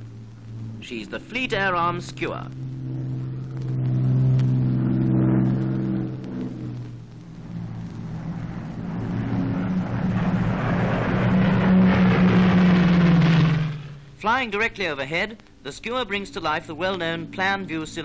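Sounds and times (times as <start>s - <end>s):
aircraft piston engine droning: 0.0s - 18.0s.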